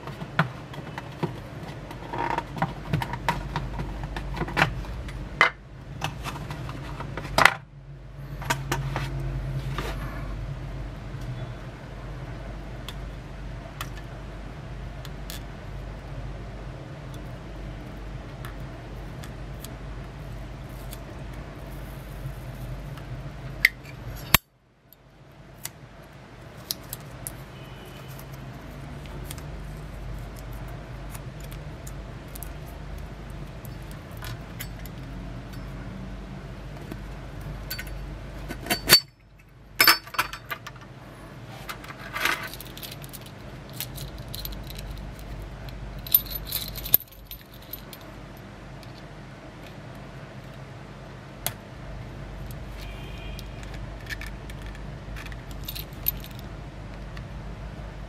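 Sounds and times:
steady low hum: 0.0 - 58.0
small metal clicks and jingling: 42.3 - 48.1, 54.0 - 56.5.

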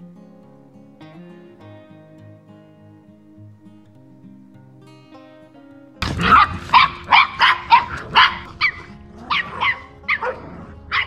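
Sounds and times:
soft acoustic guitar music: 0.0 - 11.0
dog barking rapidly: 6.0 - 11.0.

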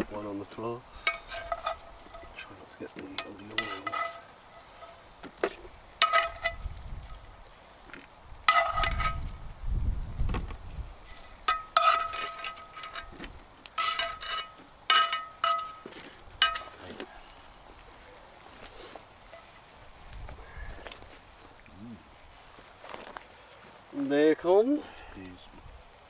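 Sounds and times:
metal tongs clinking on skillet: 1.0 - 2.4, 3.1 - 5.0, 6.0 - 6.6, 8.5 - 9.2, 11.2 - 15.8, 16.4 - 16.9, 19.3 - 19.5.

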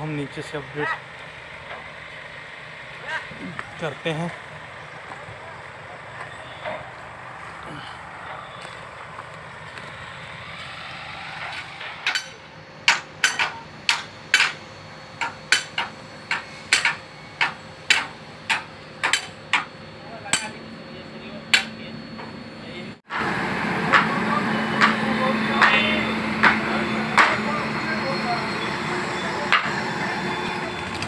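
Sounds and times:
steady background noise: 0.0 - 31.0
low hum: 0.6 - 31.0
sharp hammer-like knocks: 12.0 - 14.6, 15.2 - 19.7.

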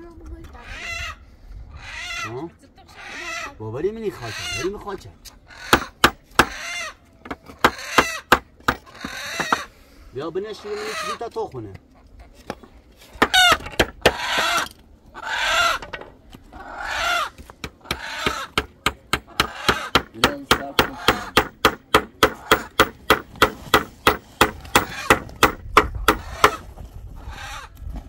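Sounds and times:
rapid knocking on wood: 5.7 - 6.5, 7.2 - 9.6, 17.6 - 26.6.

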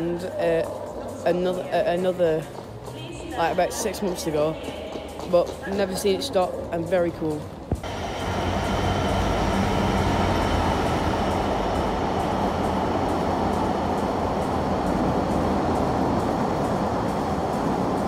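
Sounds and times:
train wheels rolling: 0.0 - 18.0
diesel locomotive engine hum: 7.8 - 18.0.

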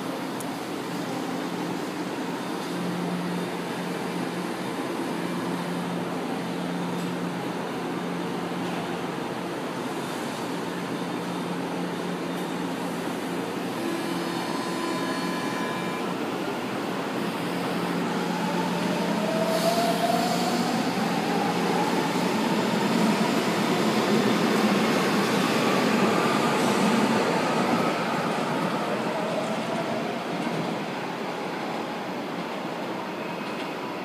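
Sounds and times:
train wheels rumbling on rails: 0.0 - 34.0
train traction motor whine: 11.3 - 23.4.

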